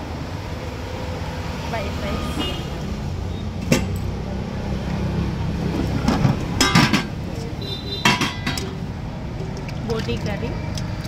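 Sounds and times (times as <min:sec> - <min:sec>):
road traffic hum: 0:00.0 - 0:11.0
spoon clinking on metal pot: 0:08.0 - 0:08.8.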